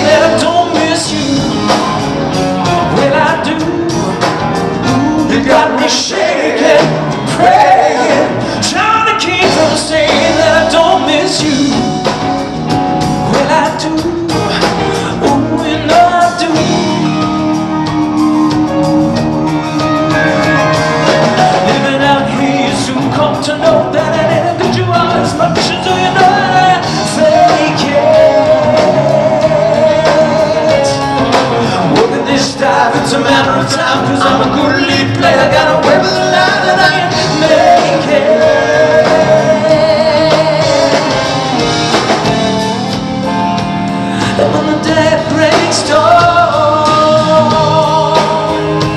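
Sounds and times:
man singing: 0.0s - 12.4s, 13.1s - 42.9s, 44.0s - 48.9s
rock band playing live: 0.0s - 48.9s.

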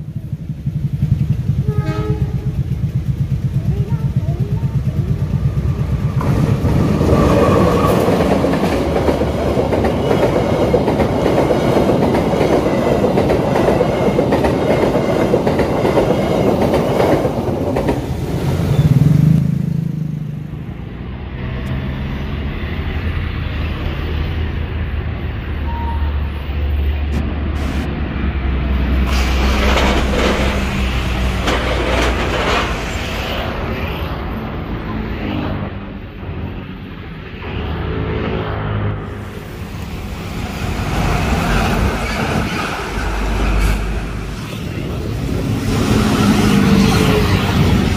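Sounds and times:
train wheels clattering on rails: 0.0s - 19.3s, 28.9s - 33.8s, 39.7s - 47.9s
truck engine rumbling: 26.8s - 36.2s.

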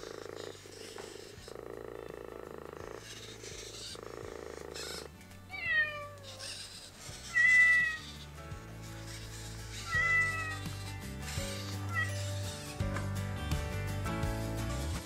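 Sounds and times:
robotic cat purring: 0.0s - 5.2s
recorded cat meows: 5.5s - 6.5s, 7.3s - 8.0s, 9.9s - 10.6s, 11.9s - 12.2s.

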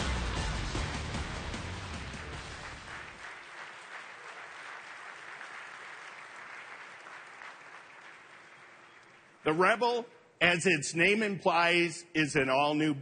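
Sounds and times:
low music: 0.0s - 3.2s
audience applause: 0.6s - 9.4s.

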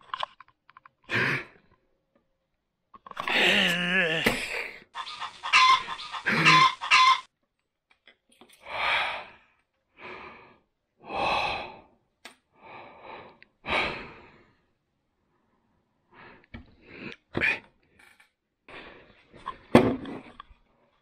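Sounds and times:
person breathing heavily: 1.1s - 1.6s, 8.6s - 17.6s, 18.7s - 19.5s
hen clucking: 5.0s - 7.3s.

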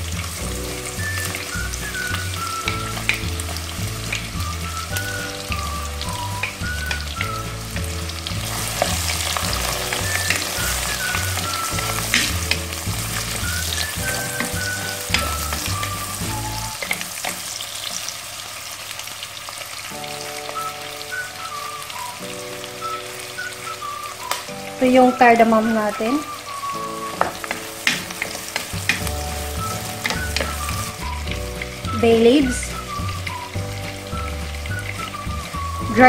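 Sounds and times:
background music with bass: 0.0s - 16.8s, 28.5s - 36.0s
onions sizzling in oil: 0.0s - 36.0s.

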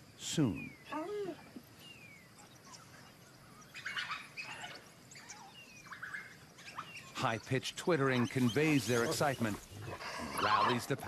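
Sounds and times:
wild dogs twittering: 0.4s - 11.0s.

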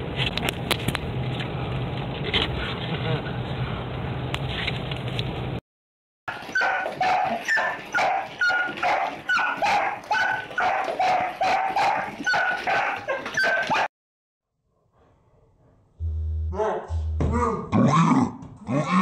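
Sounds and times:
dog barking: 6.3s - 13.9s.

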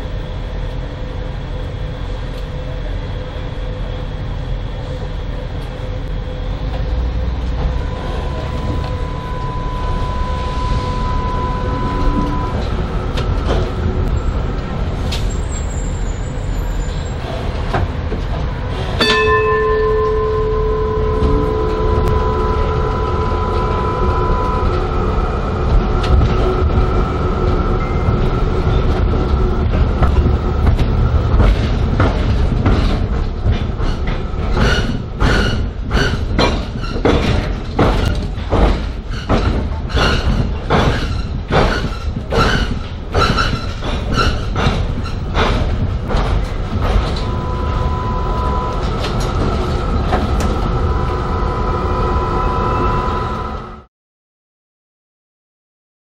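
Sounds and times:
tram rumbling with whine: 0.0s - 53.9s
regular clacks of wheels on track: 4.8s - 9.1s, 11.8s - 19.2s, 22.8s - 51.8s.

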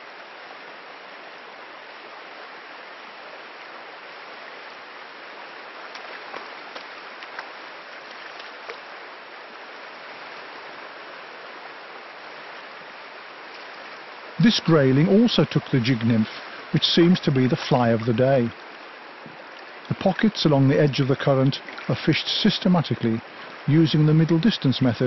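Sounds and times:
river rushing: 0.0s - 25.0s
faint ticks: 5.9s - 8.8s.

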